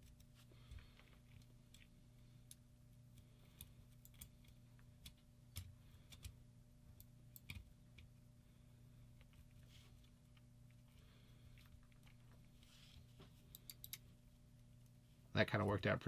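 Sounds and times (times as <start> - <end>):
small clicks and taps: 0.0 - 8.1.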